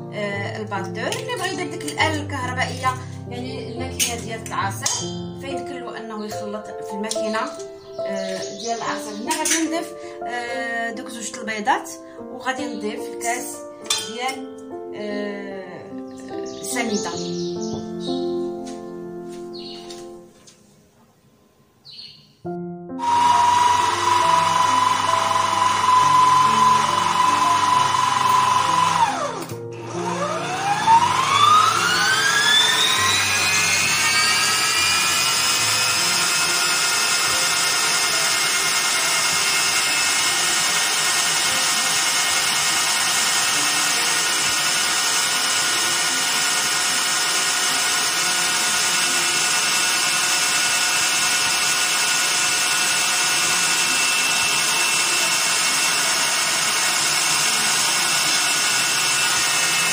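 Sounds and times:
electric stand mixer whining: 23.0 - 59.9.

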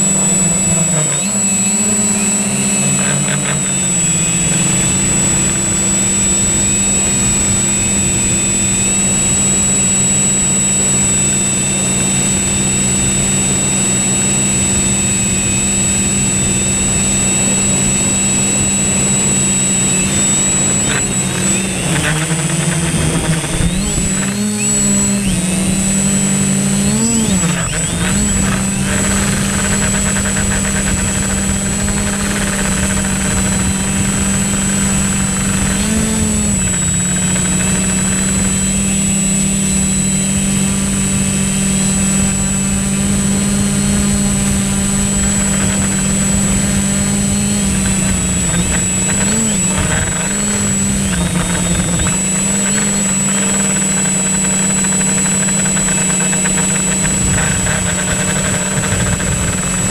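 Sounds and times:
drone propellers humming: 0.0 - 59.9
high whine: 0.0 - 59.9.

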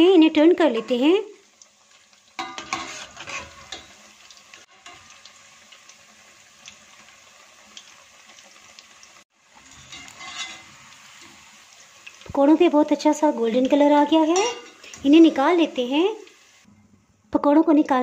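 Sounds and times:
deep-frying sizzle with crackles: 0.0 - 18.0
metal spatula scraping pot: 2.4 - 4.0, 9.6 - 11.4, 14.2 - 15.2.

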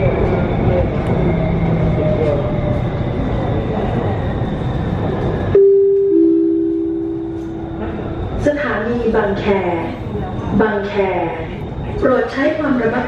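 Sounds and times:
train rumble: 0.0 - 13.0
two-note falling chime: 5.6 - 7.5.

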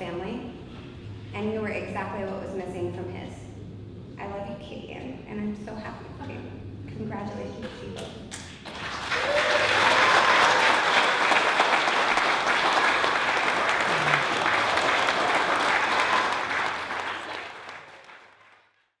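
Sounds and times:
people applauding: 8.6 - 18.9.

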